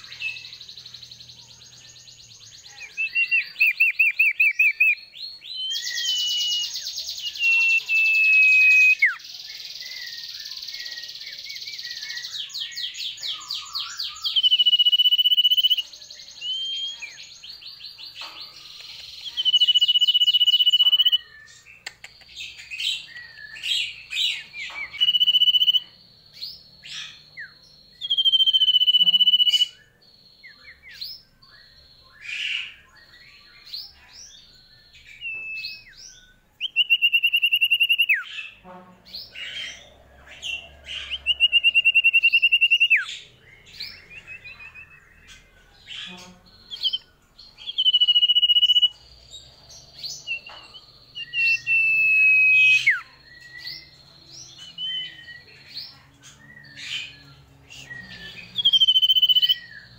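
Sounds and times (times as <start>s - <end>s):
bird chirps and twittering: 0.0s - 59.9s
songbird whistling: 2.8s - 9.2s, 10.0s - 15.8s, 16.4s - 17.2s, 19.0s - 26.0s, 26.8s - 33.5s, 34.6s - 38.3s, 40.4s - 45.2s, 46.6s - 49.0s, 50.2s - 55.7s, 56.5s - 59.9s.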